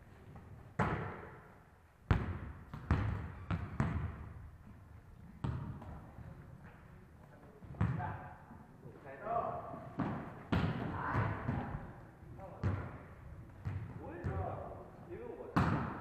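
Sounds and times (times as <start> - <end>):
volleyball smacks echoing in hall: 0.4 - 4.4, 5.4 - 6.8, 7.7 - 8.4, 9.6 - 16.0.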